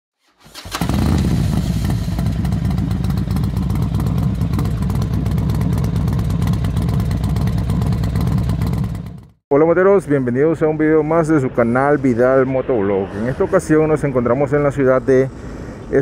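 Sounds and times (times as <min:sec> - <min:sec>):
road noise: 0:00.4 - 0:16.0
motorcycle engine running: 0:00.5 - 0:09.4.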